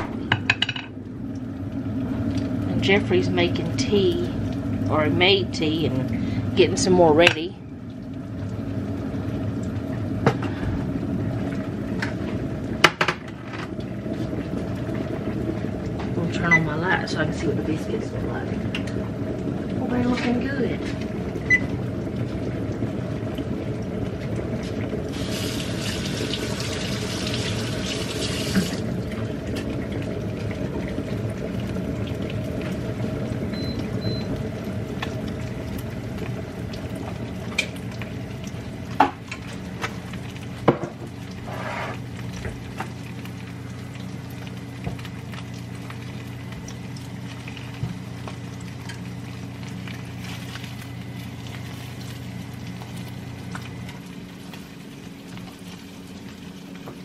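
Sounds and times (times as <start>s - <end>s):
steady low hum: 0.0s - 57.0s
tap running: 18.5s - 43.4s, 44.0s - 50.7s.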